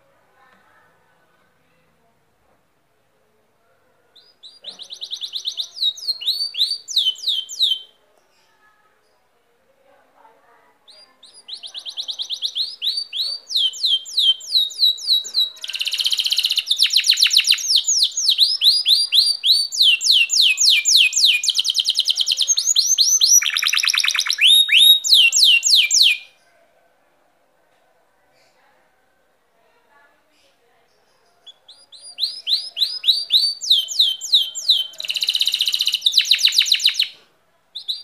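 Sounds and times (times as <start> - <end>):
canary singing trills: 4.1 - 8.6, 10.8 - 26.4, 30.3 - 38.0.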